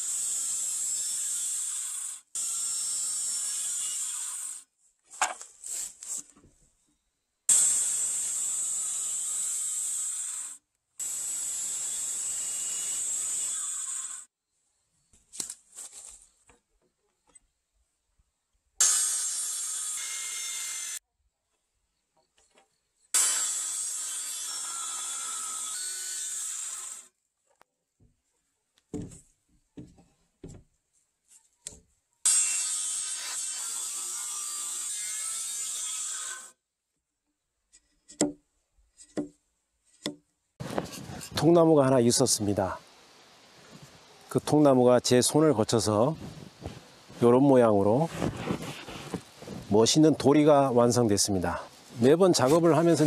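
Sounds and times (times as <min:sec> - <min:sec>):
circular saw cutting wood: 0:00.0 - 0:04.7, 0:07.5 - 0:14.3, 0:18.8 - 0:21.0, 0:23.1 - 0:27.2, 0:32.2 - 0:36.6, 0:45.7 - 0:53.0
light knocks and scraping: 0:37.7 - 0:41.4, 0:48.1 - 0:49.8.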